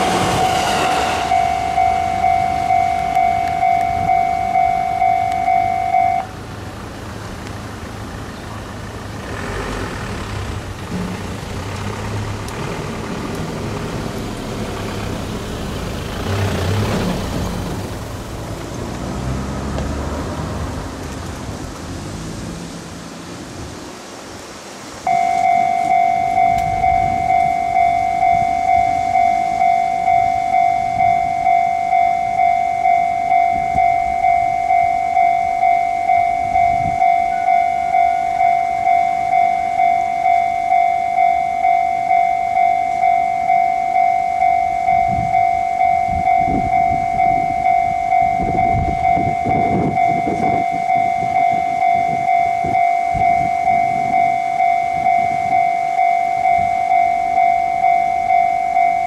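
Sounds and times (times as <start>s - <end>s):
level crossing bell ringing: 0.0s - 6.3s, 25.1s - 59.0s
diesel train engine: 0.0s - 59.0s.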